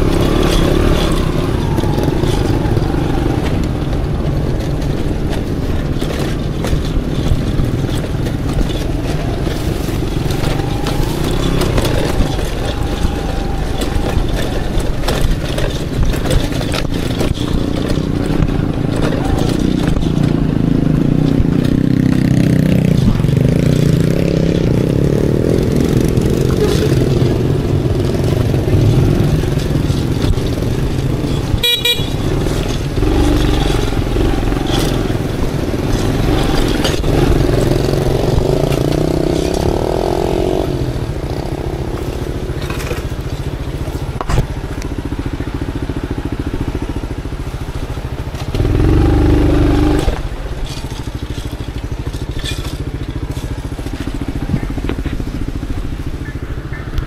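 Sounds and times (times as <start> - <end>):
motorcycle engine revving: 0.0 - 57.0
motorcycle horn toot: 31.5 - 32.5.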